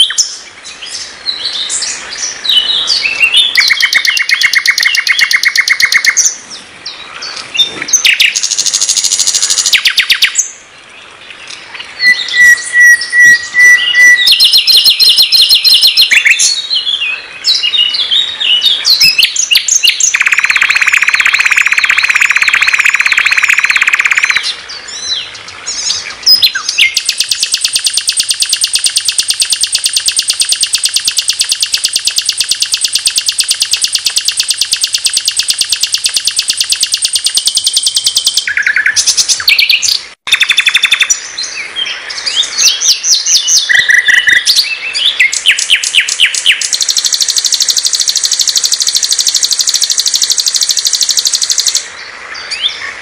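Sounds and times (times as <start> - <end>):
nightingale singing: 0.0 - 53.0.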